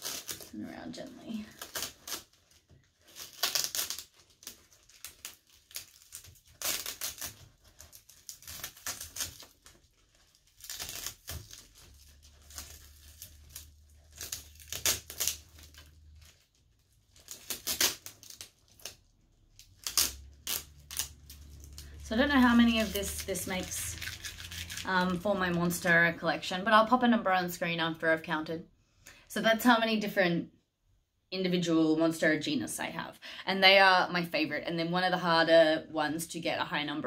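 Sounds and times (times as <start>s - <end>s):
plastic wrap crinkling: 0.0s - 26.3s.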